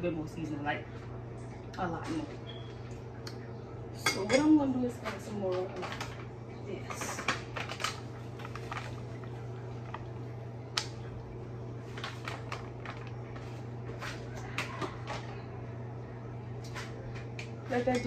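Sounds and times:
steady low hum: 0:00.0 - 0:18.0
containers clicking and rustling: 0:05.0 - 0:10.2, 0:11.8 - 0:15.4.

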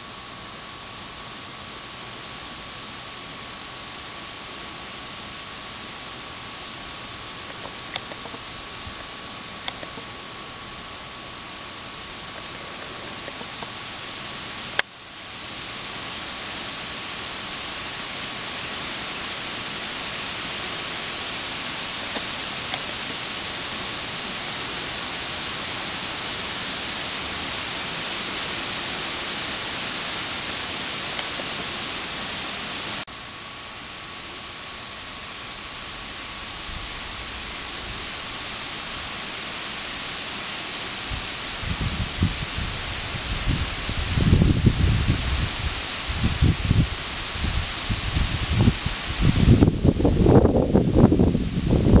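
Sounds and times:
microphone electronic hiss: 0:00.0 - 0:52.0
sharp click: 0:07.5 - 0:08.4, 0:09.6 - 0:10.1.

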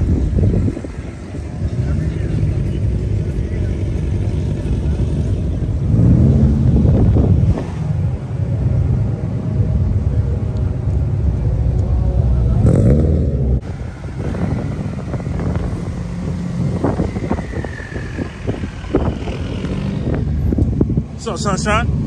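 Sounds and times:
car engines running: 0:00.0 - 0:22.0
car engine revving: 0:03.8 - 0:08.7, 0:12.4 - 0:21.0.

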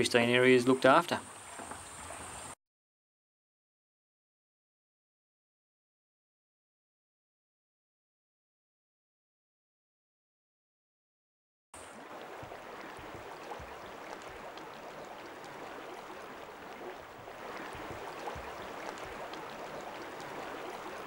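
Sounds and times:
river water rushing: 0:11.8 - 0:21.0.

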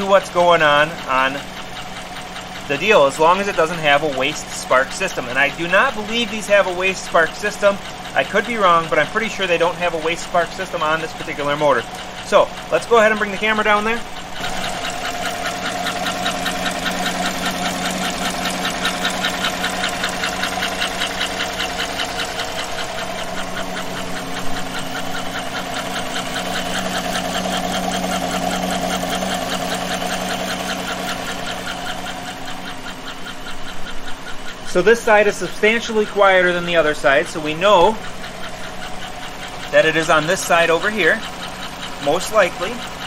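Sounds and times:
engine idling: 0:00.0 - 0:43.0
engine valve ticking: 0:00.0 - 0:43.0.

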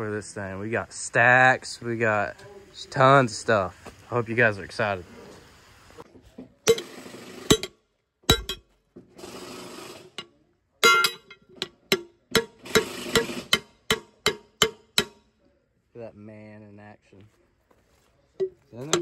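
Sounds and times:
hand tools knocking on metal: 0:06.6 - 0:09.1, 0:10.8 - 0:15.2, 0:18.4 - 0:19.0.

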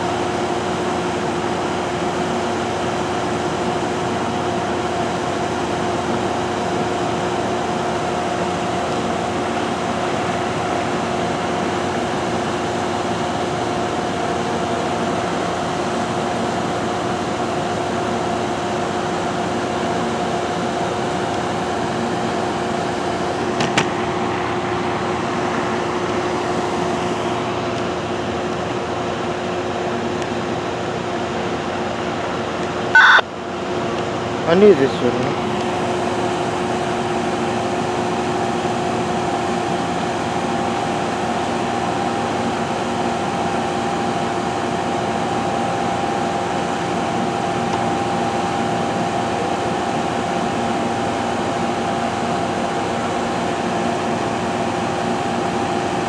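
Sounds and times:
train mechanical hum: 0:00.0 - 0:56.0.

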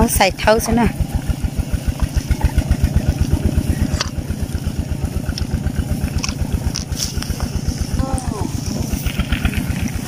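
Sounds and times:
small engine chugging: 0:00.0 - 0:10.0.

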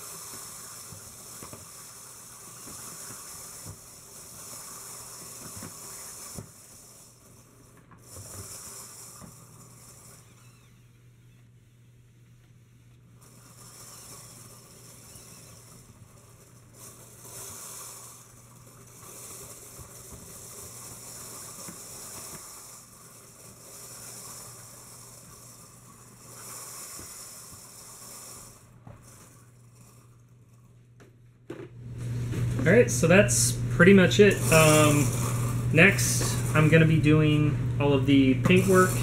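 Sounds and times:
rushing hiss of wheel bearings: 0:00.0 - 0:10.9, 0:13.2 - 0:30.0, 0:34.4 - 0:36.8, 0:38.6 - 0:39.0
steady low hum: 0:00.0 - 0:39.0.

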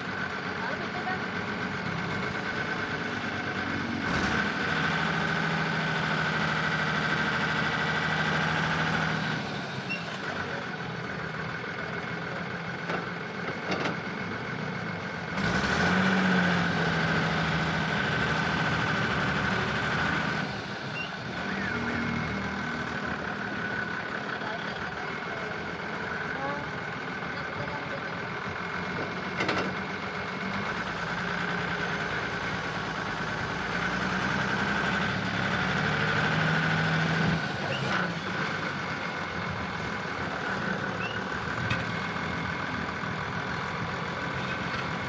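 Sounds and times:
diesel truck engine revving: 0:00.0 - 0:45.0.

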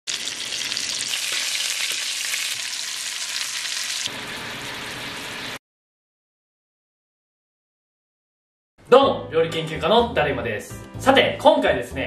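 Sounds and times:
meat sizzling in a frying pan: 0:00.1 - 0:05.6.

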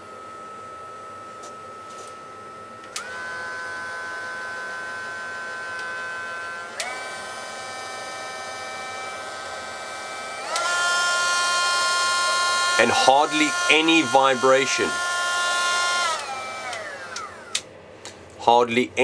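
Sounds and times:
rotary tool motor whine: 0:00.4 - 0:17.6.

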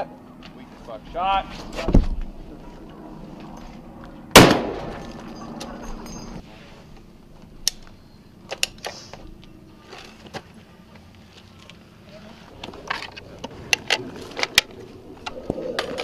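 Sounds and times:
rifle shot echoing: 0:04.3 - 0:05.0.

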